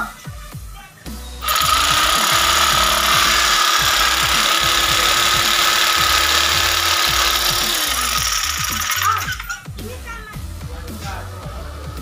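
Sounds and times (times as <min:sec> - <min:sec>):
background music with beat: 0:00.0 - 0:12.0
power tool motor whining: 0:01.4 - 0:09.6.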